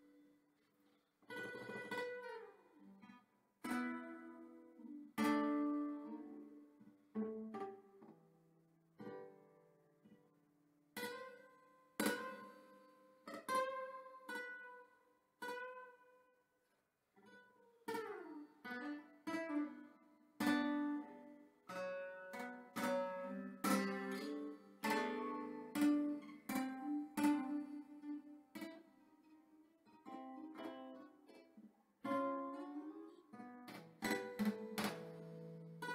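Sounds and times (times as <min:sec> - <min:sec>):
acoustic guitar plucking: 0:01.3 - 0:02.7, 0:03.6 - 0:08.3, 0:11.0 - 0:12.8, 0:17.9 - 0:35.9.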